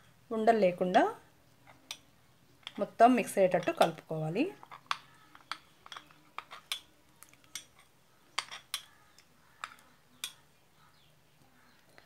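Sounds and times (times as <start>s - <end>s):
spoon clinking glass bowl: 4.6s - 10.4s.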